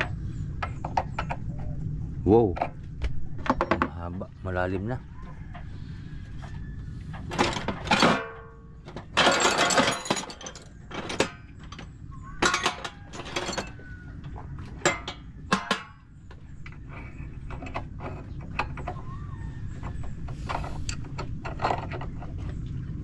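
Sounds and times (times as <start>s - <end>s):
clattering rattle: 7.2s - 19.1s
metal tools clanking: 7.2s - 19.2s.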